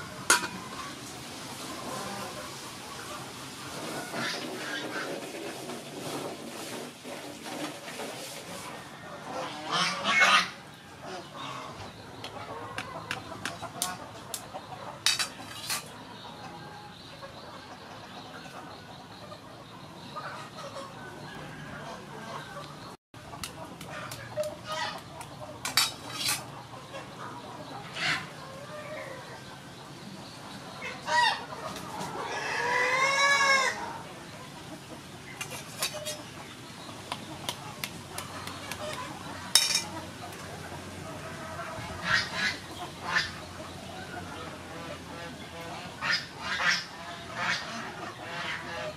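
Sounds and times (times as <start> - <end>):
poultry calling loudly: 9.3 - 14.1, 30.8 - 34.1.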